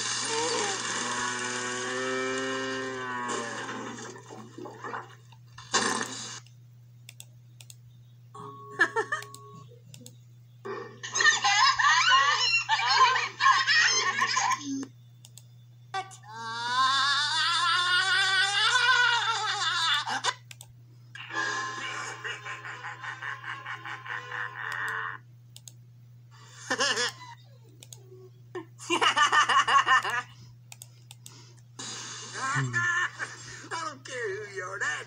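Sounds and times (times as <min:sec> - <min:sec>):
steady low hum: 0:00.0 - 0:35.0
cartoon voices: 0:32.4 - 0:33.1.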